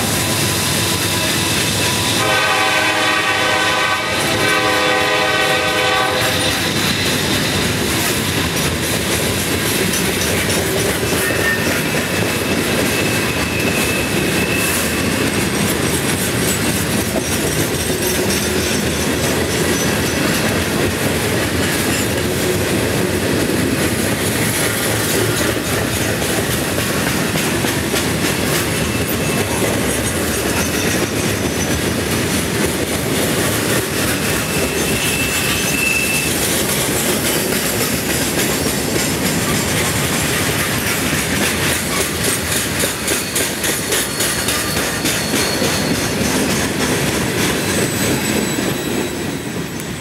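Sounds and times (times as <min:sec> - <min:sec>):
train wheels clacking on rail joints: 0:00.0 - 0:50.0
high wheel squeal: 0:11.0 - 0:16.8, 0:33.8 - 0:38.0, 0:41.8 - 0:46.8, 0:47.5 - 0:50.0.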